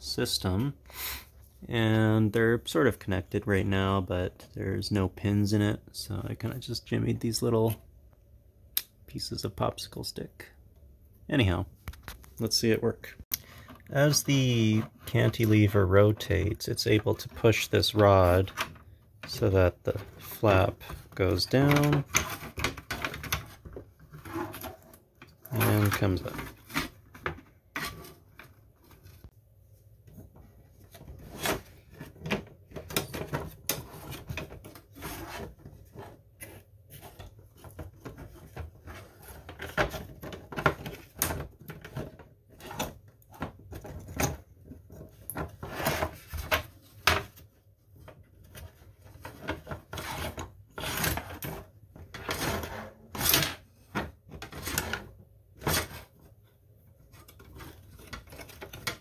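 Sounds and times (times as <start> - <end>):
plastic parts clicking and knocking: 17.0 - 29.1, 30.1 - 52.5, 57.1 - 59.0.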